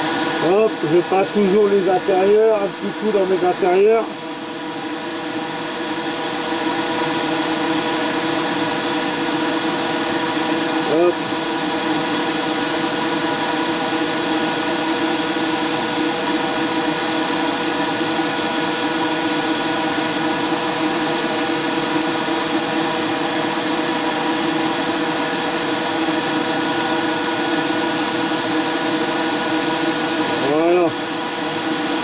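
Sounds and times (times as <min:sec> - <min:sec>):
small electric motor hum: 0:00.0 - 0:32.0
airbrush spraying hiss: 0:11.2 - 0:20.2, 0:28.0 - 0:32.0.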